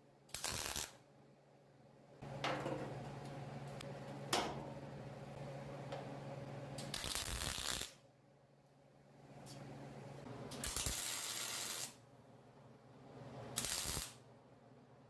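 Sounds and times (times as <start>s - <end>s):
welding arc crackle: 0.3s - 1.0s, 6.8s - 8.0s, 10.5s - 12.0s, 13.6s - 14.2s
low steady hum: 1.0s - 7.0s.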